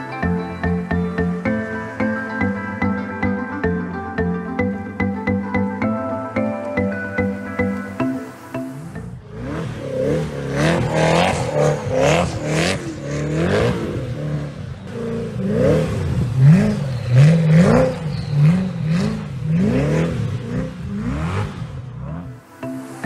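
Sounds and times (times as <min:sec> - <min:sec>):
car engine revving hard: 0:08.8 - 0:22.4.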